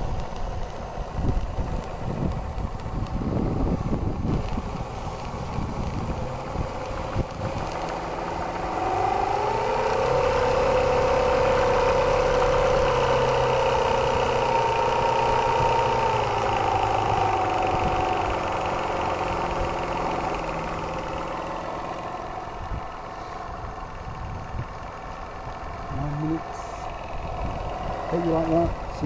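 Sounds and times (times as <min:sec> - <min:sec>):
steam engine running: 0:00.0 - 0:29.0.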